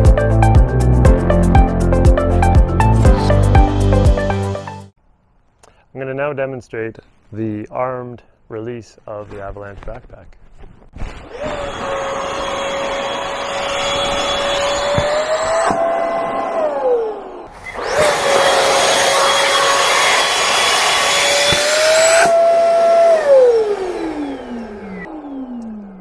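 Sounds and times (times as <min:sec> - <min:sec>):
electric fan motor whine: 0:11.4 - 0:26.0.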